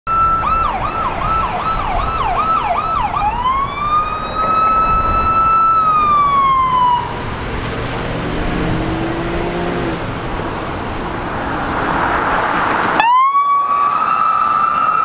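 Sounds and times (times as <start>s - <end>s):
electronic siren yelp and wail: 0.1s - 7.2s, 13.0s - 15.0s
road traffic noise: 0.1s - 15.0s.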